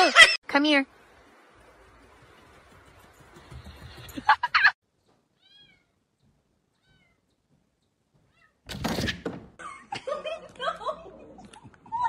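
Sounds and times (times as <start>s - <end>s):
cat meowing softly: 5.4s - 6.0s, 6.8s - 7.2s.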